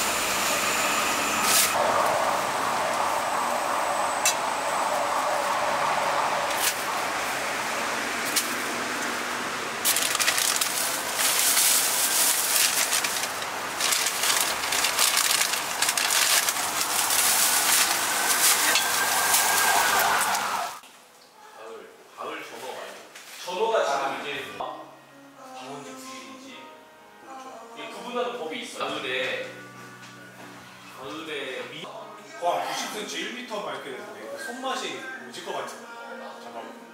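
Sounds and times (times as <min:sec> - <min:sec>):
steady background hum: 0:00.0 - 0:20.8
plastic bag crinkling: 0:09.8 - 0:20.0.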